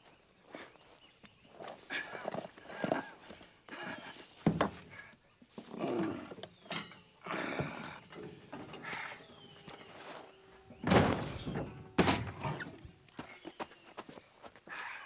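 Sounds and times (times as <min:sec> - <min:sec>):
heavy thumps: 0:10.6 - 0:13.0.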